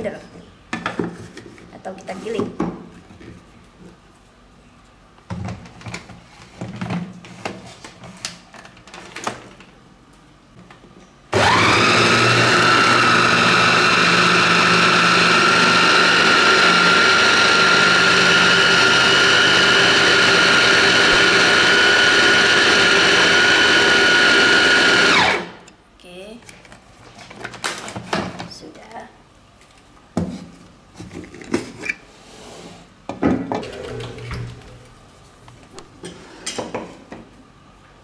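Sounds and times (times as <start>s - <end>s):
food processor motor whining: 11.3s - 25.6s.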